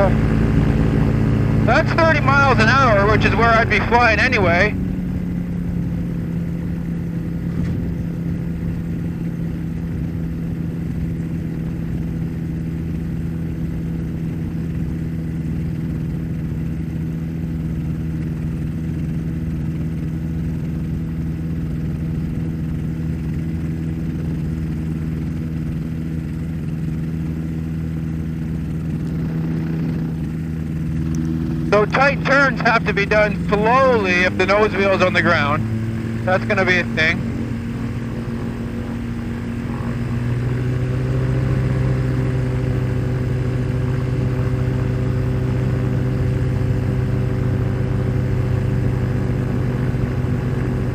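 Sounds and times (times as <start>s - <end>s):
two-stroke aircraft engine running: 0.0s - 50.9s.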